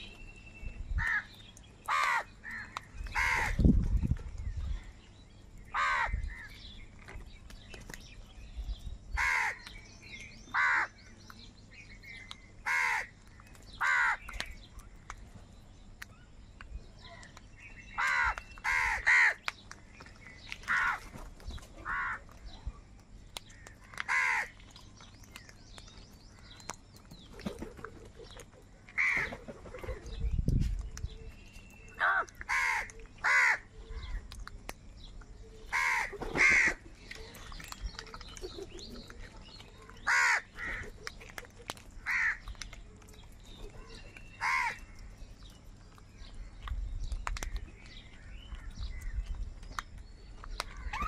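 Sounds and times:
crows cawing: 0:01.0 - 0:01.3, 0:01.9 - 0:03.6, 0:05.7 - 0:06.4, 0:09.2 - 0:09.6, 0:10.6 - 0:10.9, 0:12.6 - 0:13.1, 0:13.8 - 0:14.2, 0:18.0 - 0:19.4, 0:20.7 - 0:21.1, 0:21.8 - 0:22.2, 0:23.6 - 0:24.5, 0:29.0 - 0:29.3, 0:32.0 - 0:33.7, 0:35.7 - 0:36.8, 0:40.1 - 0:40.9, 0:42.0 - 0:42.5, 0:44.4 - 0:44.8.

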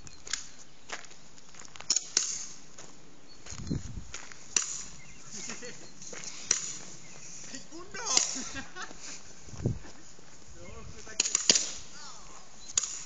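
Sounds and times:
airsoft guns firing: 0:11.2 - 0:12.0.

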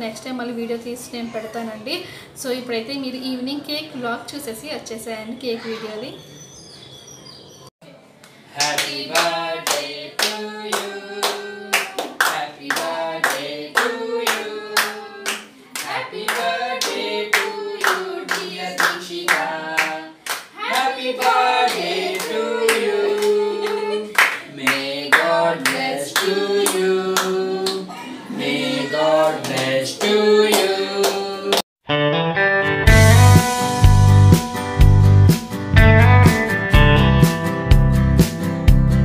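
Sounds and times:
hand claps: 0:08.2 - 0:27.8, 0:29.4 - 0:31.6
group singing a birthday tune: 0:08.4 - 0:31.6.

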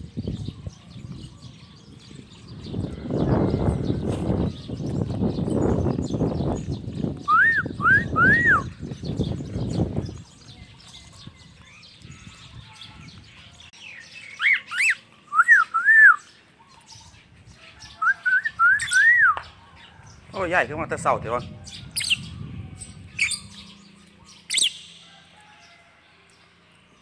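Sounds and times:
bird shrill chirps: 0:10.8 - 0:20.0, 0:21.7 - 0:25.2.

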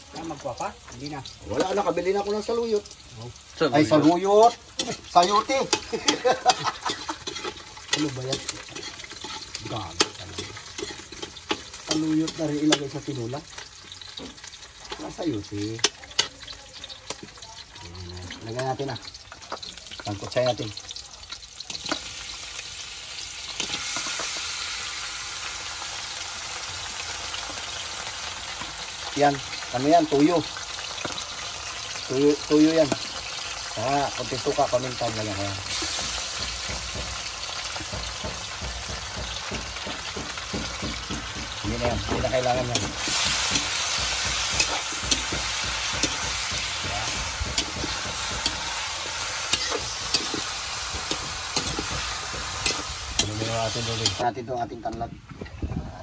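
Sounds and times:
chicken sizzling in hot oil: 0:00.0 - 0:56.0
metal spatula scraping wok: 0:03.0 - 0:17.2, 0:23.1 - 0:25.0, 0:35.2 - 0:54.2.

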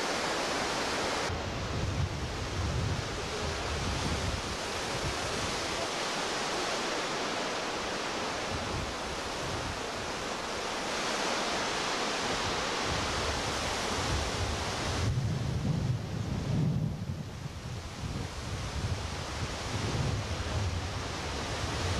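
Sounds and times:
whitewater rapids rushing: 0:00.0 - 0:01.3, 0:03.0 - 0:15.0.

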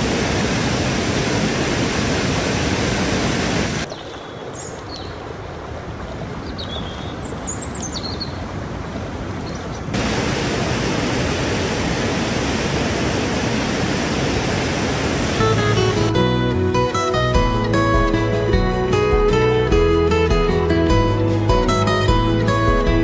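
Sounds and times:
stream rushing over rocks: 0:00.0 - 0:16.2
acoustic guitar music: 0:15.4 - 0:23.0.

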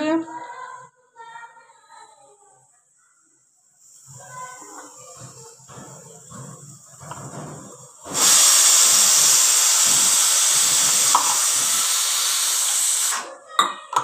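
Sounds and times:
pressure cooker steam hissing: 0:03.7 - 0:13.3.

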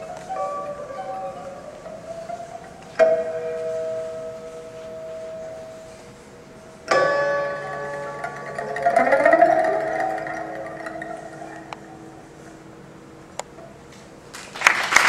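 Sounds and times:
plucked lutes playing: 0:00.0 - 0:13.9.

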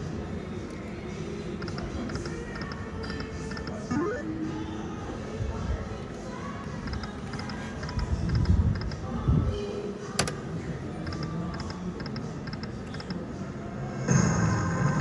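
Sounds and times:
low background din: 0:00.0 - 0:15.0.

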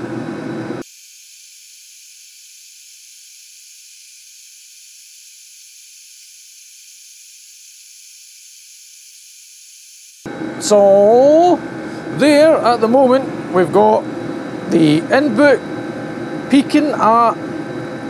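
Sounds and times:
diesel heater running: 0:00.0 - 0:00.8, 0:10.3 - 0:18.0.

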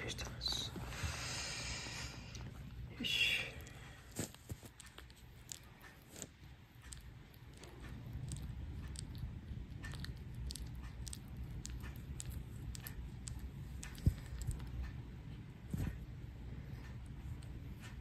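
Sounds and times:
kitten chewing wet clicks: 0:03.6 - 0:16.2.

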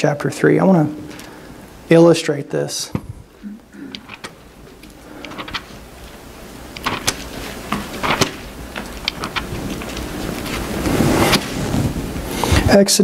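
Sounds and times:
book pages rustling and flicking: 0:05.3 - 0:05.8, 0:06.8 - 0:12.7.

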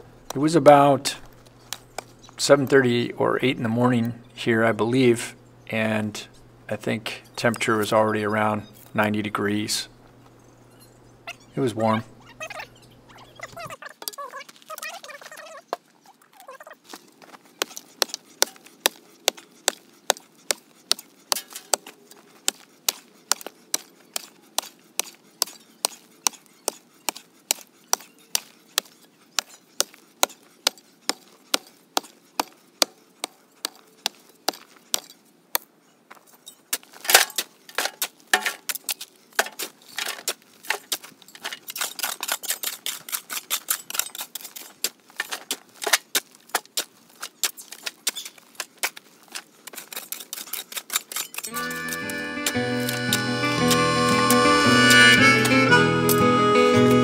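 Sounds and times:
pick mattock striking gravel: 0:36.8 - 0:48.0.

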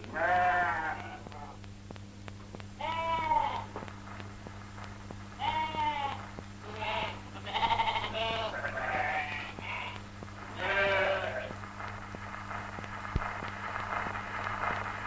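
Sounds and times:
sheep bleating: 0:00.0 - 0:01.6, 0:02.8 - 0:03.8, 0:05.4 - 0:10.0, 0:10.6 - 0:11.6
faint crackle: 0:00.0 - 0:15.0
low hum: 0:00.0 - 0:15.0.

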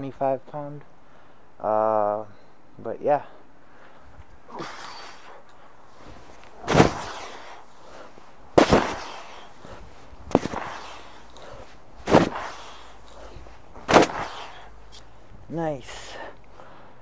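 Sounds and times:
mace swing whoosh: 0:06.6 - 0:07.6, 0:08.6 - 0:09.5, 0:10.3 - 0:11.4, 0:12.0 - 0:13.0, 0:13.8 - 0:14.7.

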